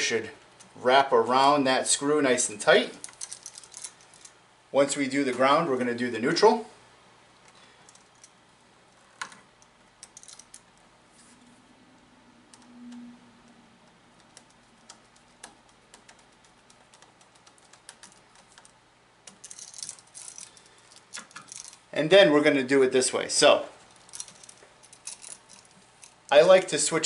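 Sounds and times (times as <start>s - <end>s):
rattling clicks: 19.3s - 21.8s.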